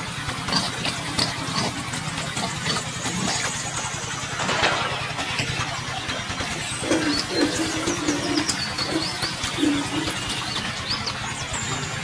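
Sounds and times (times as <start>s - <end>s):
small engine idling: 0.0s - 12.0s
small birds chirping: 5.9s - 12.0s
bird cooing: 6.7s - 11.0s.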